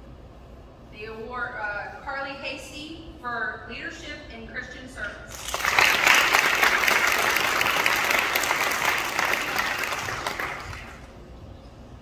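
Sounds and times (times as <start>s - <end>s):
audience applauding: 5.3s - 11.2s.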